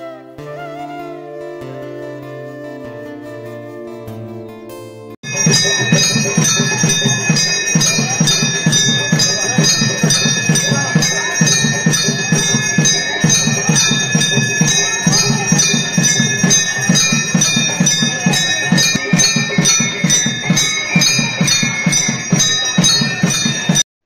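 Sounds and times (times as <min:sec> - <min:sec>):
temple bells ringing: 0:05.2 - 0:23.8.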